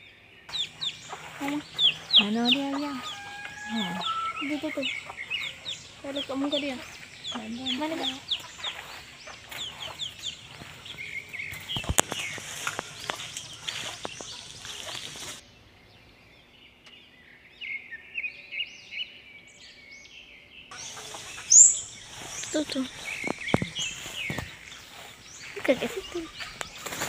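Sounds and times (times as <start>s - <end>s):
chickens clucking and calling: 0.5s - 15.4s, 20.7s - 27.0s.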